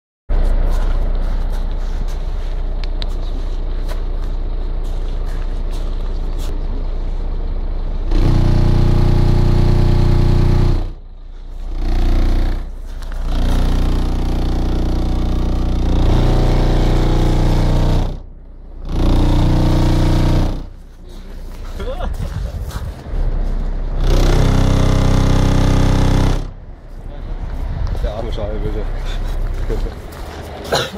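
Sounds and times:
subwoofer playing bass-heavy music: 8.0 - 30.9.

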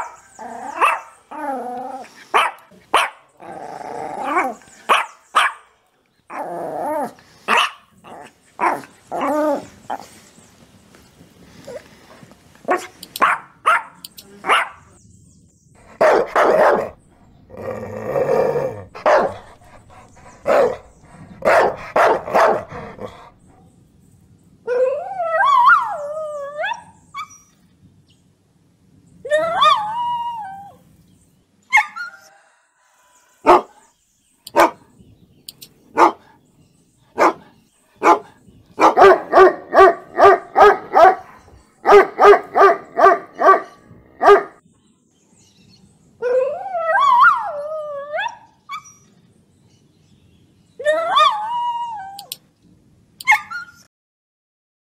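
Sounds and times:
dogs barking aggressively: 0.0 - 1.4, 2.0 - 10.2, 12.6 - 14.8, 15.8 - 23.5, 33.4 - 33.8, 34.5 - 34.9, 35.9 - 36.4, 37.1 - 44.6.

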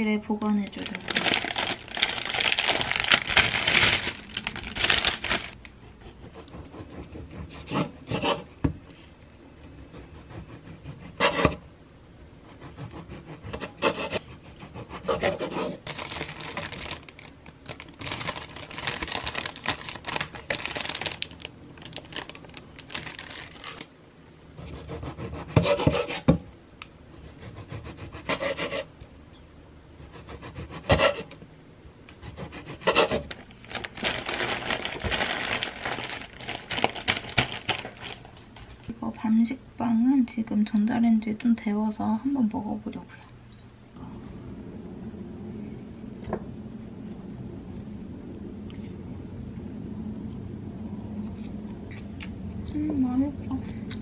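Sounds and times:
plastic bag crinkling: 0.6 - 5.7, 15.8 - 23.9, 33.2 - 38.9
bread knife sawing bread: 6.1 - 8.5, 9.9 - 11.6, 12.4 - 15.8, 24.6 - 26.3, 27.1 - 28.9, 30.0 - 31.3, 32.2 - 33.2.

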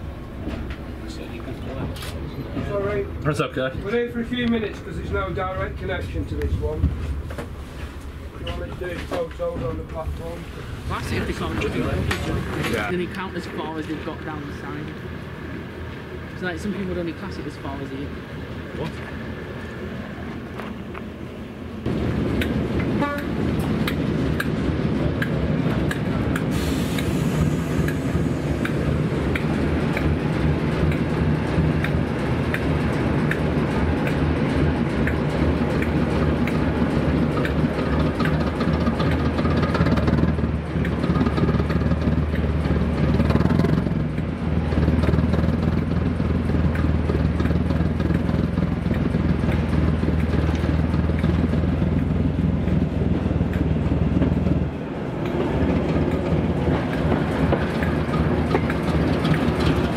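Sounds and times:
diesel locomotive engine running: 0.0 - 59.9
train wheels clicking over rail joints: 21.8 - 59.9.

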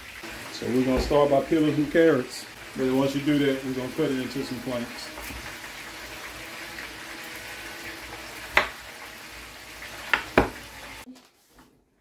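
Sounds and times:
knife striking wooden board: 8.5 - 8.8, 10.1 - 10.6.

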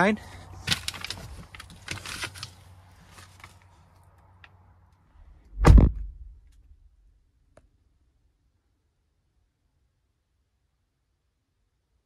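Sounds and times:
heavy thump: 5.4 - 6.7.

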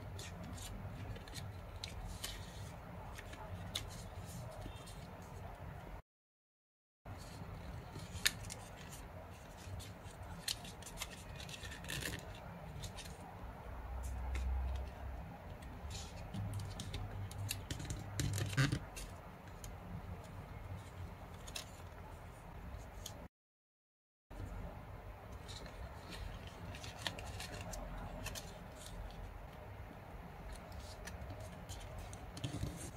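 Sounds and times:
paper rustling and crackling: 7.4 - 13.3, 25.3 - 29.6, 30.4 - 32.9.

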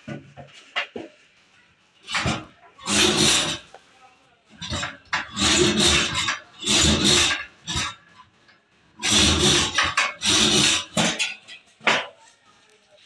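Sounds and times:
rubber sole rasping on metal spindle: 2.1 - 3.7, 4.6 - 8.0, 9.0 - 11.3.

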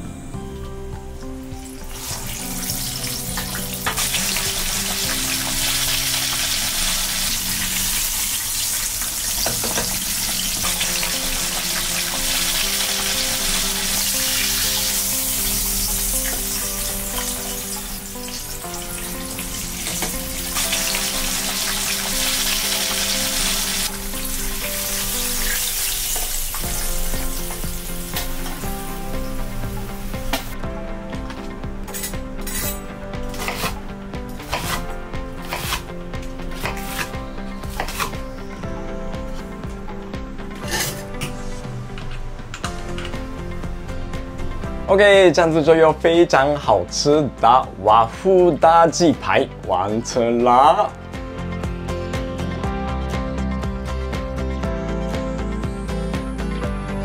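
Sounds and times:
background music: 0.0 - 57.0
chicken sizzling in hot oil: 1.8 - 30.6.

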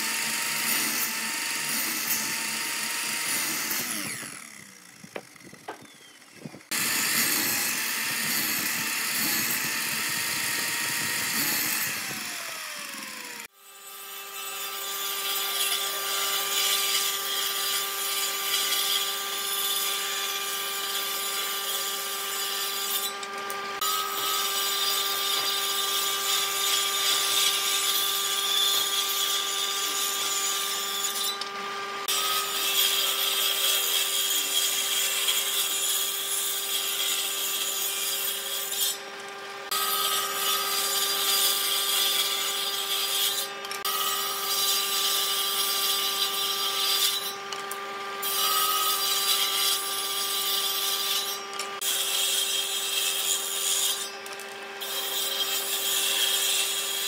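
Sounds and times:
saw spinning down whine: 0.0 - 13.5
miter saw cutting wood: 0.0 - 57.0
table saw running: 0.0 - 57.0.

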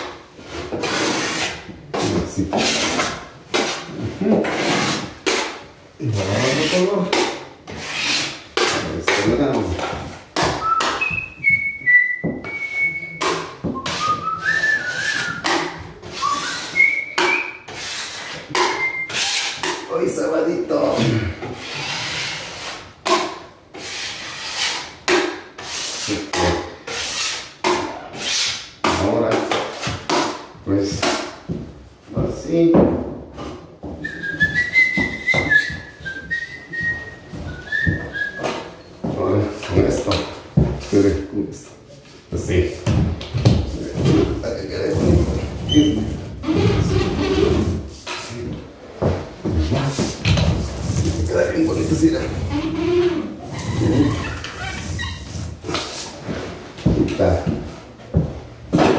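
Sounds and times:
drywall knife scraping: 0.0 - 11.3, 13.2 - 20.2, 20.8 - 31.5, 42.3 - 56.7
person whistling a tune: 10.6 - 15.5, 16.2 - 17.6, 18.7 - 19.1, 34.0 - 38.6.

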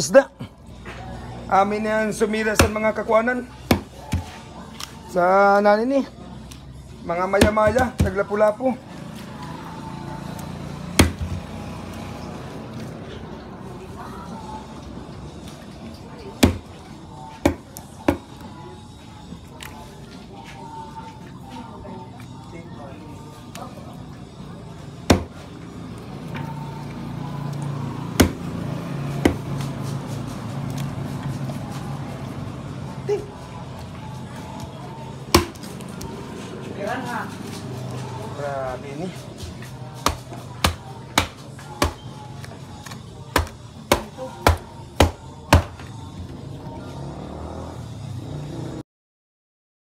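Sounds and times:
knife chopping fish on board: 3.7 - 4.3, 7.4 - 8.2, 11.0 - 11.4, 16.4 - 16.7, 17.4 - 18.3, 25.1 - 25.3, 28.2 - 28.4, 35.3 - 35.7, 40.0 - 42.0, 42.8 - 45.7.

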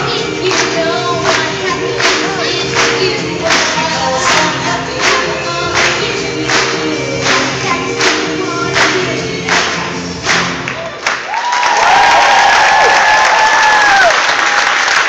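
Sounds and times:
upbeat music with steady beat: 0.0 - 10.8
audience applause and cheering: 0.0 - 15.0
long held whoops: 11.3 - 14.6.

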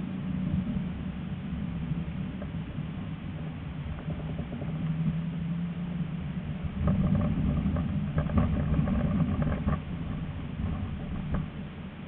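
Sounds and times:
tram motor hum: 0.0 - 12.0
wheels clattering on rails: 1.7 - 12.0.

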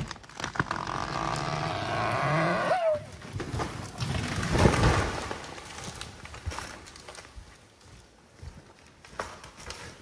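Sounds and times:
tree trunk crashing to ground: 0.0 - 2.5, 3.1 - 7.4
tree wood creaking and groaning: 0.0 - 10.0.

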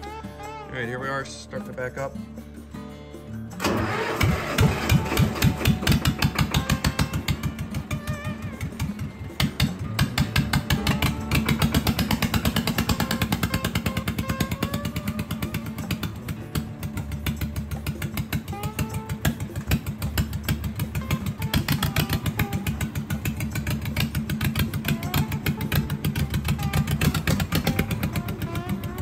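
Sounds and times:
guitar music: 0.0 - 29.0
diesel engine starting and idling: 2.4 - 29.0.

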